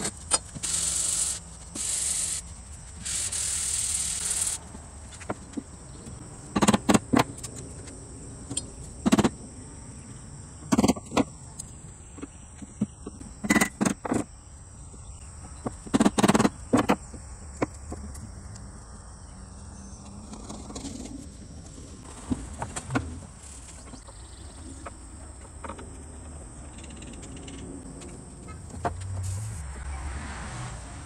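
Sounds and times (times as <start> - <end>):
high insect buzz: 0.5 - 4.6.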